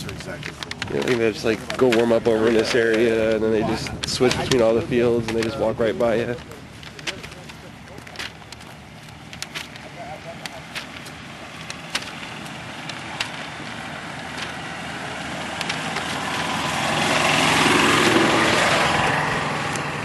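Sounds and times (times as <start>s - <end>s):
small engine passing by: 12.2s - 20.0s.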